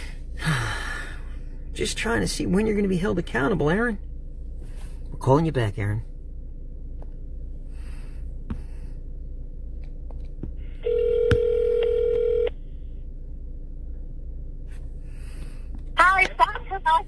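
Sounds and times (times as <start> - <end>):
telephone ringback tone: 10.8 - 12.5.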